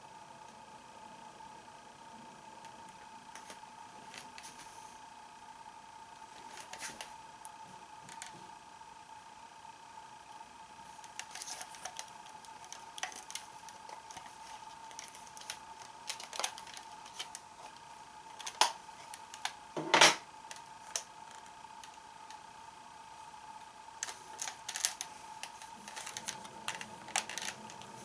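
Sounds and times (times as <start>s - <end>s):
faint steady hum: 0.0s - 28.0s
plastic toy clicks and clacks: 24.0s - 27.9s.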